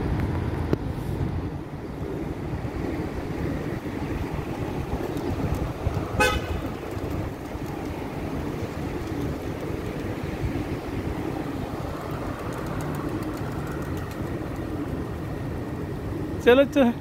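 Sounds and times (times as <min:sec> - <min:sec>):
road traffic: 0:00.0 - 0:17.0
car horn toot: 0:06.2 - 0:06.8.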